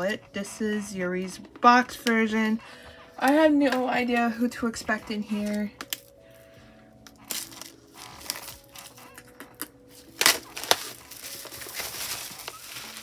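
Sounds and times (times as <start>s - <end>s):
packaging clicks: 5.4s - 6.2s, 7.0s - 13.0s
plastic and paper crinkling: 7.0s - 13.0s.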